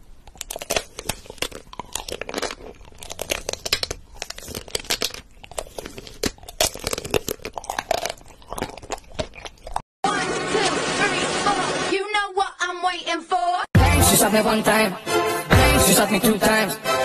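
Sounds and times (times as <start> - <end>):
stick snack crunching: 0.0 - 9.8.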